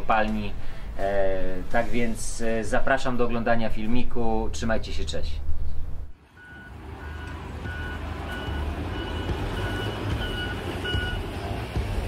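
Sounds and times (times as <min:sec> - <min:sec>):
diesel engine rumbling: 0:05.9 - 0:12.0
reversing alarm beeping: 0:06.4 - 0:11.3.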